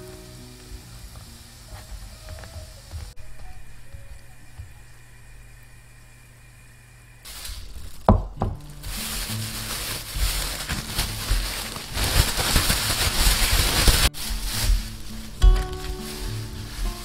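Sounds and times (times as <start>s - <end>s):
food thudding against bag: 7.3s - 16.2s
plastic bag crinkling and rustling: 7.3s - 17.0s.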